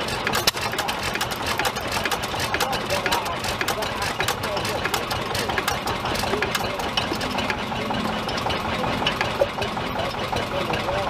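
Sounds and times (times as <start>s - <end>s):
stationary engine running: 0.0s - 11.0s
short irregular clicks: 0.3s - 7.6s.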